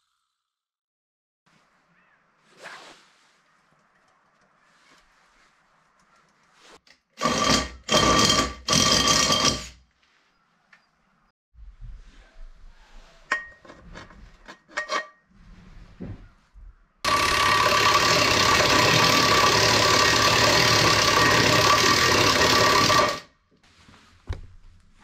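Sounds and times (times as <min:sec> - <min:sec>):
power drill boring through metal: 0:07.2 - 0:09.8, 0:17.1 - 0:23.3.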